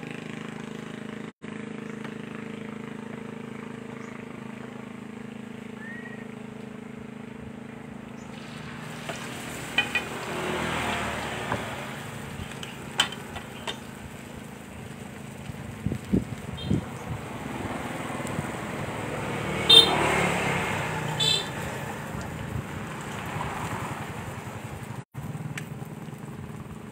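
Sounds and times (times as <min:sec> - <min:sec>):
food sizzling in hot oil: 0:08.3 - 0:17.3.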